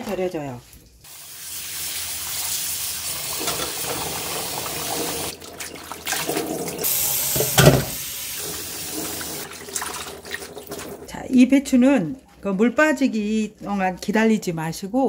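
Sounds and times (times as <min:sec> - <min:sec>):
tap water running into metal sink: 0:01.1 - 0:11.1.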